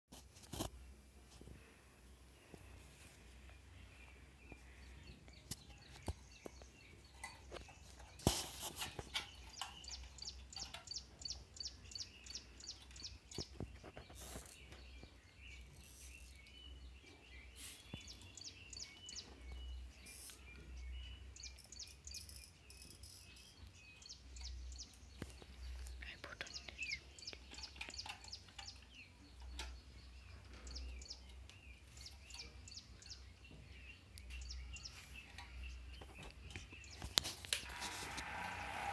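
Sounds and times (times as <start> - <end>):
birds chirping: 0.8 - 38.9
clicks and taps of small parts: 27.3 - 29.8.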